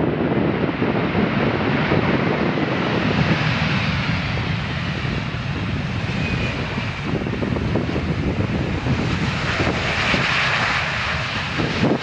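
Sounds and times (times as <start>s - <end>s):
jet engines rushing and rumbling: 0.0s - 12.0s.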